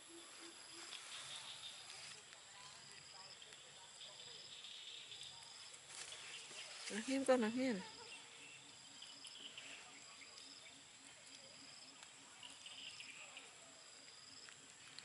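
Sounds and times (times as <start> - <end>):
insects chirping in grass: 0.0 - 15.0.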